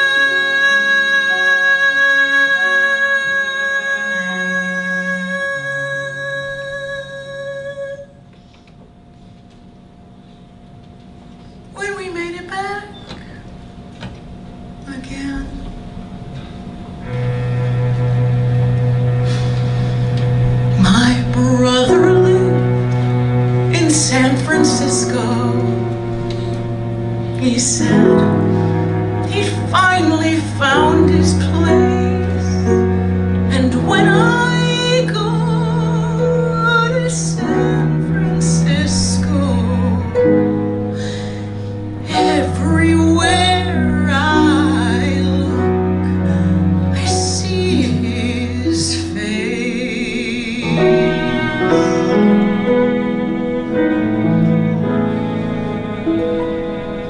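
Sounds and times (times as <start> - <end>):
woman singing a slow ballad: 0.0 - 8.2, 20.7 - 22.9, 23.7 - 26.0, 27.4 - 28.5, 29.2 - 41.3, 42.0 - 52.2
instrumental accompaniment: 15.6 - 57.0.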